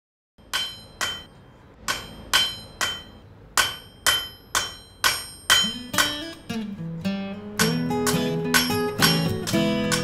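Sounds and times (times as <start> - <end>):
hammer striking anvil: 0.4 - 6.5, 7.6 - 10.0.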